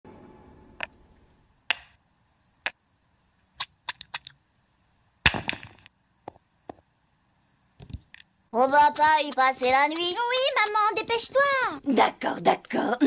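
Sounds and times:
toy blocks clacking: 1.7s - 1.9s.

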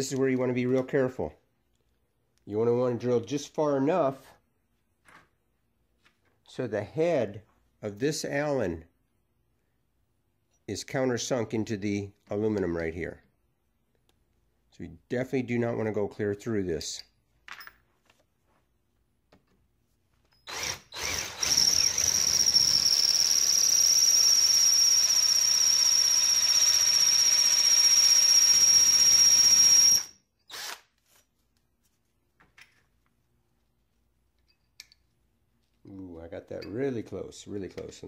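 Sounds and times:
electric drill whining into metal: 20.3s - 30.9s.

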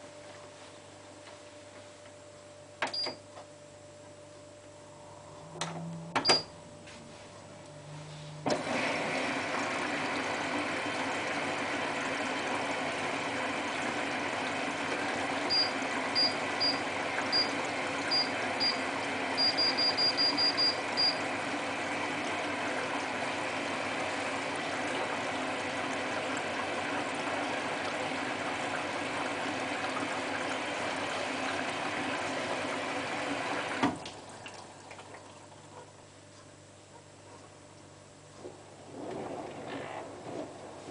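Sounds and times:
washing machine clicks: 2.8s - 3.2s, 5.6s - 6.5s
water rushing into washing machine: 8.4s - 36.0s, 38.3s - 40.9s.

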